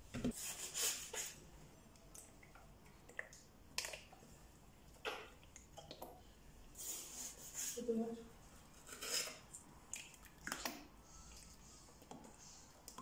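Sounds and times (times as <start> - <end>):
scratchy scraping: 8.8 - 9.4.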